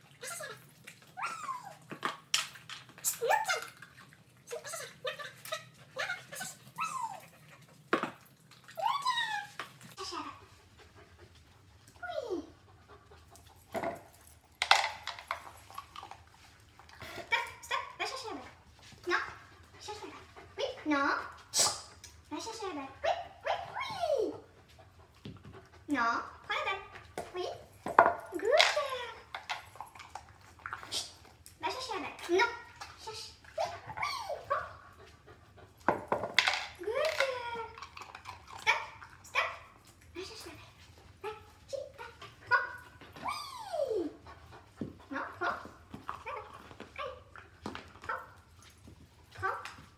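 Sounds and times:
ball knocking plastic dog bowl: 13.7s - 15.5s, 27.2s - 28.8s, 35.9s - 37.3s.

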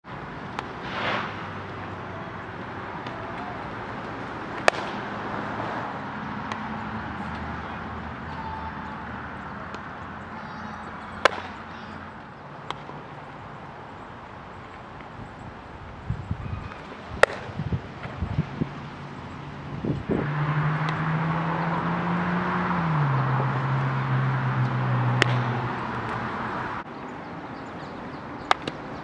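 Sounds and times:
baseball smacking into glove: 4.6s - 5.0s, 11.2s - 11.6s, 16.7s - 17.6s, 25.2s - 25.5s
low outdoor hum: 20.8s - 29.0s.

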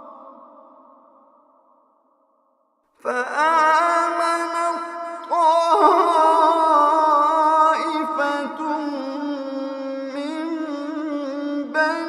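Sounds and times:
man chanting melodically: 3.0s - 12.0s.

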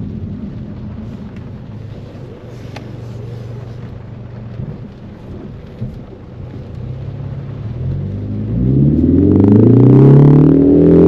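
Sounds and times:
car engine droning: 0.0s - 11.0s
rain hiss and wet road noise: 0.0s - 11.0s.

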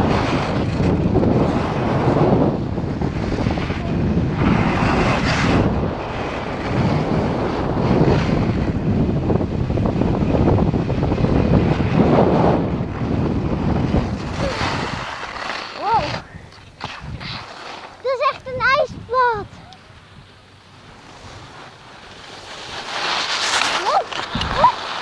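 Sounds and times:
skis hissing and scraping on snow: 0.0s - 19.7s, 20.7s - 25.0s
wind rushing over microphone: 0.0s - 25.0s.

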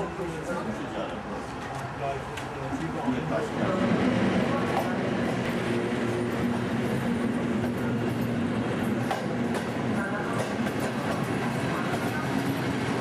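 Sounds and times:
wheels clacking over rail joints: 4.2s - 13.0s.

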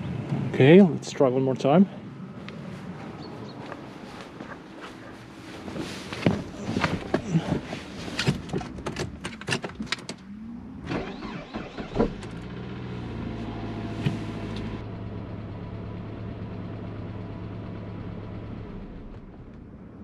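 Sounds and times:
car engine idling: 10.1s - 19.7s
starter motor cranking whine: 10.8s - 12.8s.

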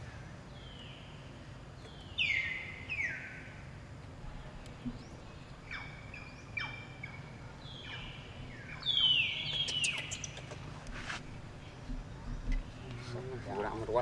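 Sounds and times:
short high chirping calls: 7.8s - 10.7s.

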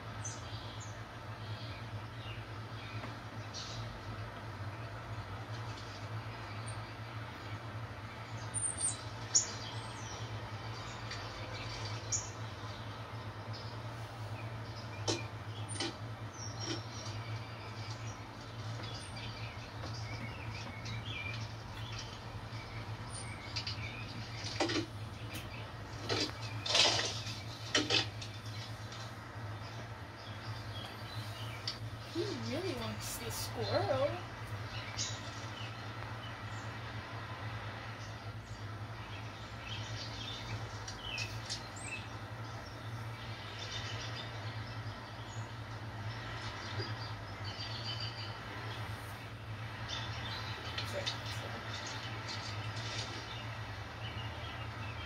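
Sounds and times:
songbirds chirping through speakers: 0.0s - 55.0s
steady low hum: 0.0s - 55.0s.

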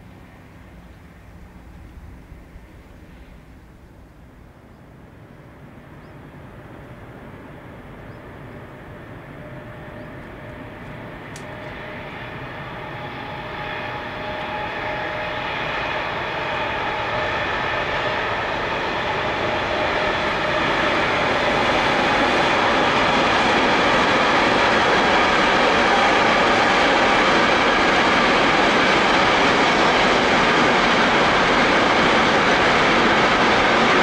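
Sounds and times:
freight train on rails: 0.0s - 34.0s
locomotive steady whine: 0.0s - 34.0s.

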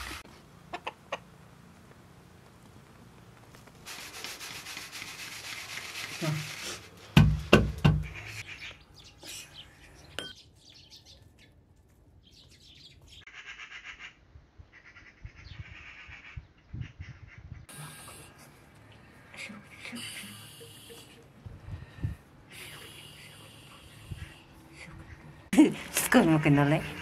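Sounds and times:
steady hiss: 3.6s - 7.0s
hand rubbing flour in a bowl: 3.9s - 7.1s.

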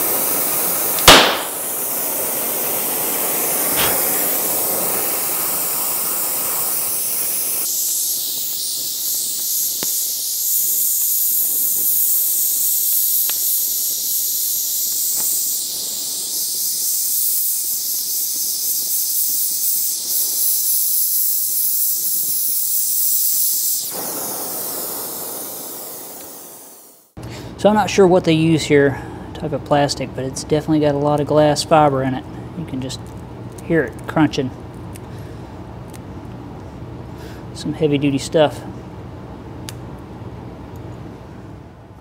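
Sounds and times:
torch flame hissing: 0.0s - 27.2s.

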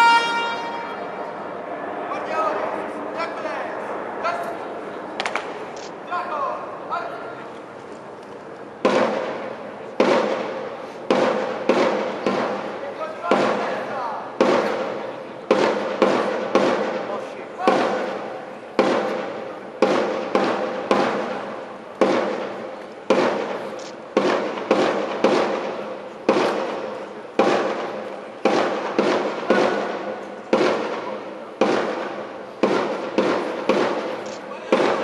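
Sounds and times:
sharp percussive strikes echoing: 8.8s - 35.0s.

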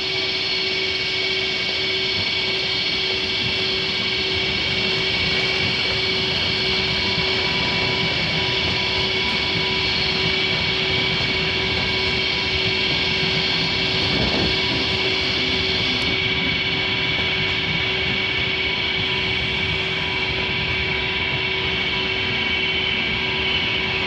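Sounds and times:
high-pitched train whine: 0.0s - 24.0s
train wheels rushing on rails: 0.0s - 24.0s.

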